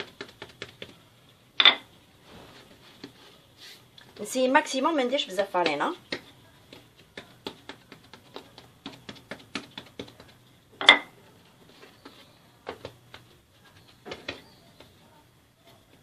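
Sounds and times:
soft knocks squaring dough: 0:00.0 - 0:01.1, 0:05.1 - 0:16.0
rolling pin knocking on dough: 0:05.6 - 0:11.1.

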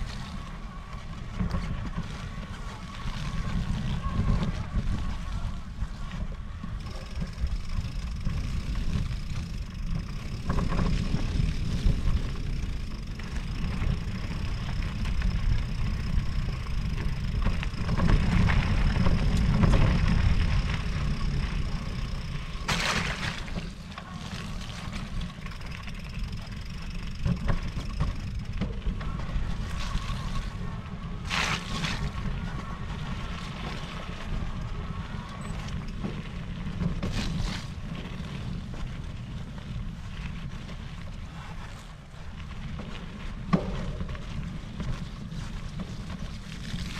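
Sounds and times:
bike tyres rolling: 0:00.0 - 0:46.9
thin steady whine: 0:00.0 - 0:46.9
wind rumbling on microphone: 0:00.0 - 0:46.9
sharp rattles: 0:06.7 - 0:30.5.

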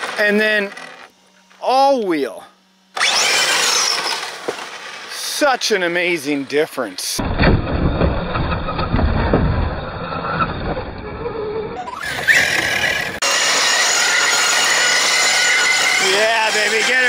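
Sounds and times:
electric motor whine: 0:00.0 - 0:17.0
rc car rumbling over dirt: 0:03.0 - 0:13.2.

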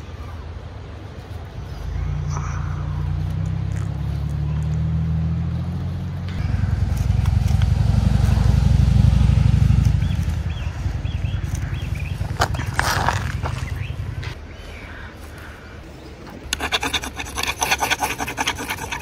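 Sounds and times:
vehicle engine running: 0:01.8 - 0:14.4
knife shaving wood: 0:16.5 - 0:19.0.

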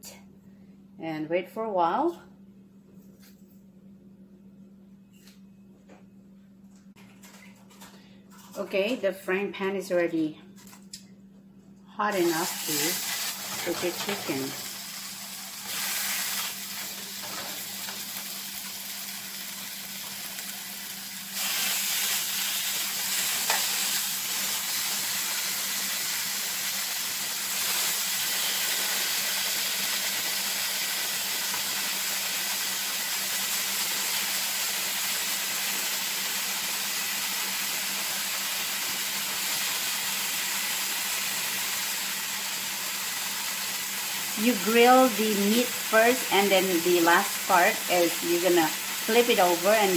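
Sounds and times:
chicken sizzling in frying pan: 0:12.1 - 0:49.9.

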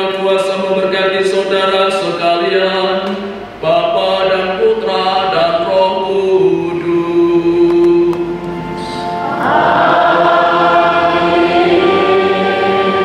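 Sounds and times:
congregation singing response: 0:05.1 - 0:13.0.

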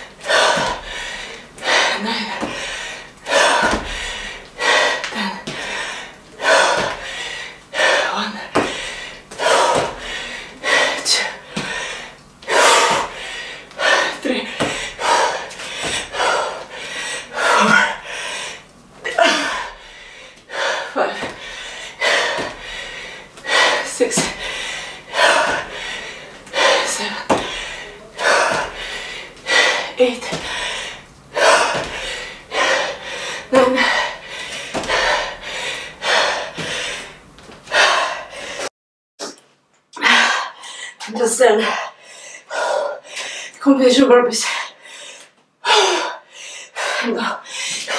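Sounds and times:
woman breathing hard: 0:00.0 - 0:38.7, 0:40.0 - 0:43.6, 0:44.4 - 0:47.9
feet landing on a mat: 0:27.2 - 0:27.7.

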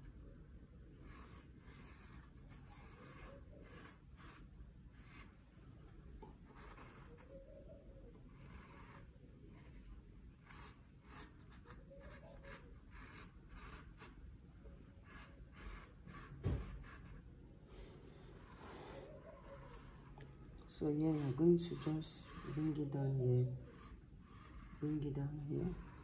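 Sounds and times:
marker pen strokes on mesh: 0:08.3 - 0:09.8, 0:10.4 - 0:14.2, 0:18.3 - 0:26.0.

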